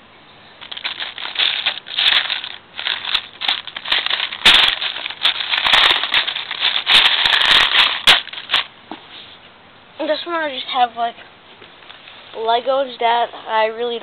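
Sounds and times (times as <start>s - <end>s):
plastic bricks clattering: 0.6s - 8.7s.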